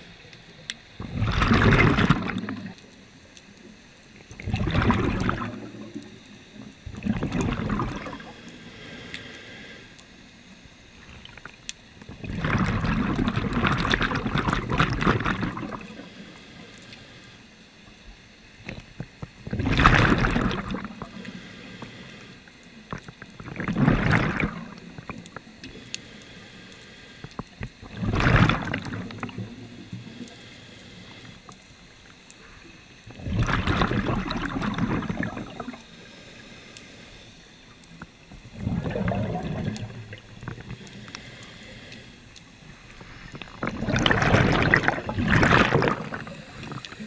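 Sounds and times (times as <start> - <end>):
bubbles bursting underwater: 1.0 - 2.8, 4.4 - 6.1, 6.9 - 8.2, 12.1 - 15.9, 19.5 - 21.0, 23.4 - 25.1, 27.8 - 29.7, 33.1 - 35.8, 38.5 - 40.6, 43.4 - 46.8
diver breathing through regulator: 8.0 - 10.0, 40.5 - 47.0.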